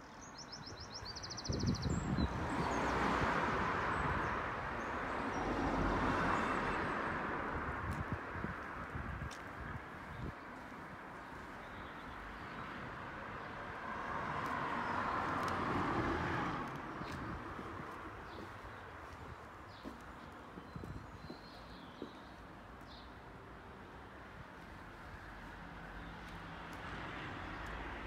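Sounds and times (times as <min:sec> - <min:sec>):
passing vehicle: 0:13.7 - 0:18.8.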